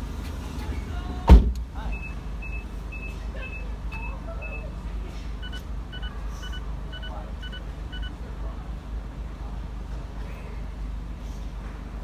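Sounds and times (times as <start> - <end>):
short electronic beeps: 1.9 - 4.7, 5.4 - 8.2.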